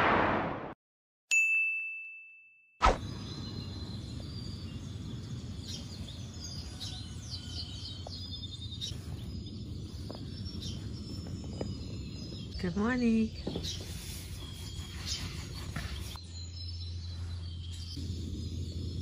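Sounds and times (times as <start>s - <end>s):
birds chirping: 3.0s - 19.0s
steady low rumble: 17.9s - 19.0s.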